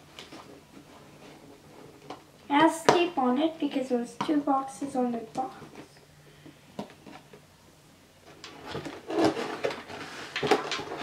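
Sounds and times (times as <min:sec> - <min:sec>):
cardboard packaging rustling: 0:08.2 - 0:11.0.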